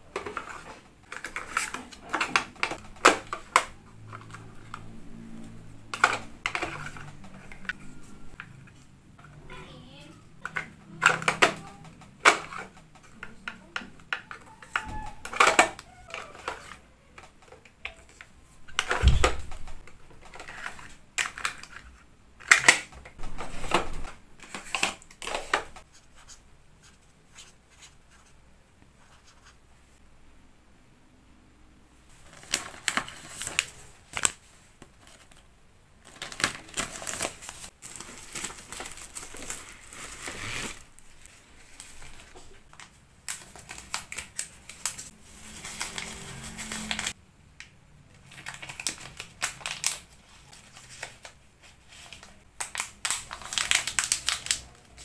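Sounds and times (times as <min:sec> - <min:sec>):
plastic drawers opening and shutting: 0:00.0 - 0:08.8, 0:10.4 - 0:25.8
paper cards rustling: 0:00.0 - 0:09.4, 0:10.1 - 0:28.4, 0:32.1 - 0:47.2, 0:48.2 - 0:55.0.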